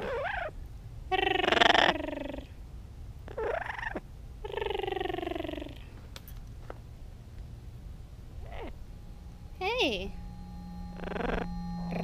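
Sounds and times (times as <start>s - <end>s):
parrot calling: 0.0s - 0.6s, 8.4s - 8.8s.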